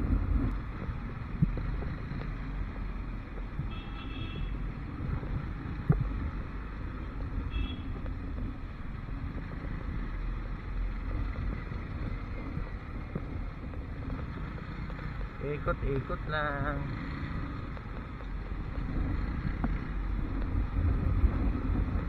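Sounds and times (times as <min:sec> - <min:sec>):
wind on microphone: 0:00.0 - 0:02.4, 0:04.4 - 0:14.7, 0:17.6 - 0:22.0
motorcycle engine and road rumble: 0:00.0 - 0:22.0.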